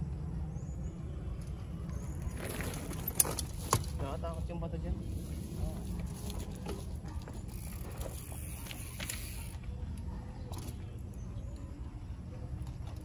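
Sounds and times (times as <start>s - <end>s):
wind and tyres rumbling: 0.0s - 13.0s
bike rattling and clicking: 1.4s - 4.4s, 5.1s - 11.2s.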